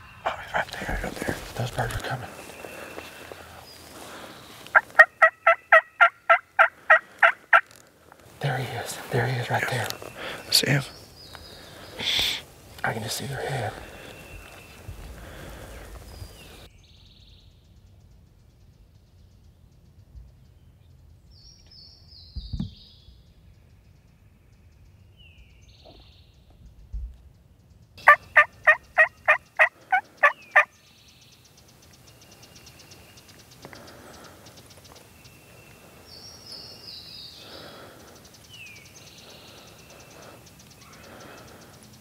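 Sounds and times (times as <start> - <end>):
turkey gobbling: 4.7 - 7.7, 28.0 - 30.7.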